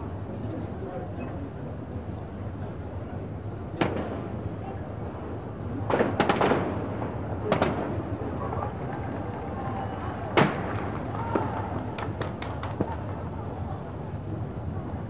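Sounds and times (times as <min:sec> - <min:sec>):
low background noise: 0:00.0 - 0:15.0
distant gunshots: 0:05.9 - 0:08.0.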